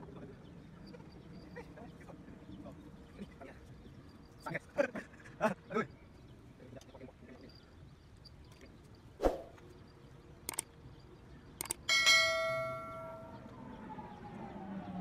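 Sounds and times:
sharp clicks: 10.4s - 10.8s, 11.6s - 11.9s
notification bell ding: 11.9s - 13.4s.

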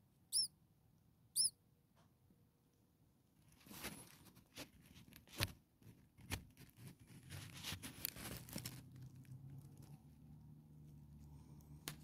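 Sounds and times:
dry grass rustling and crackling: 7.2s - 10.0s.

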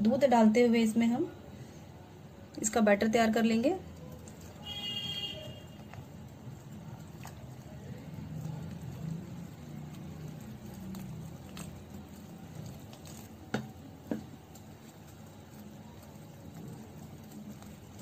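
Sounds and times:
whisk squishing batter: 2.6s - 18.0s.

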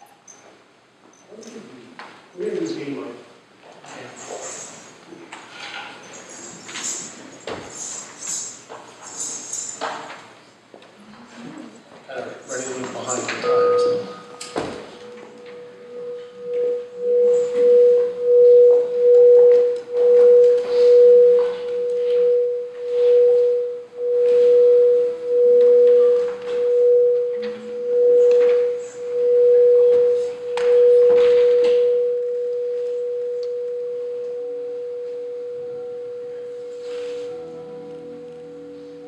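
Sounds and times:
crystal singing bowl tone: 12.6s - 39.0s.

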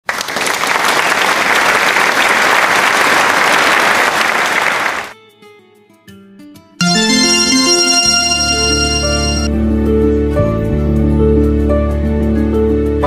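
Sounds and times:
crowd clapping: 0.0s - 5.2s
soft music notes: 6.8s - 9.5s.

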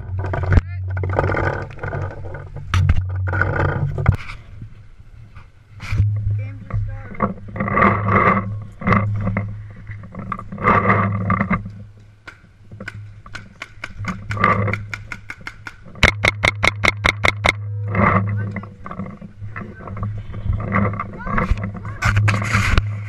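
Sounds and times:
steady low hum: 0.0s - 23.0s
muffled bursts of noise: 15.9s - 23.0s.

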